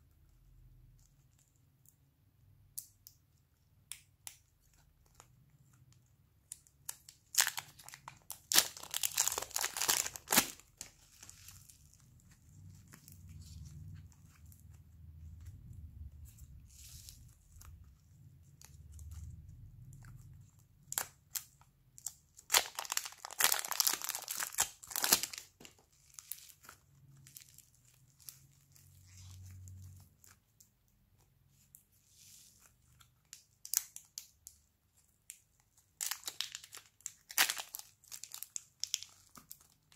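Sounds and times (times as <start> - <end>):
plastic wrapping crinkling: 4.6 - 15.5, 16.3 - 30.7, 31.5 - 39.9.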